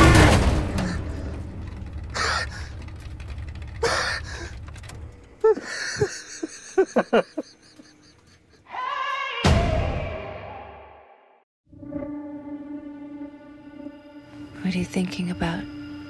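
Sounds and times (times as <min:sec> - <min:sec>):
man sobbing and whimpering: 0:02.1 - 0:02.9, 0:03.8 - 0:04.6, 0:05.4 - 0:08.7.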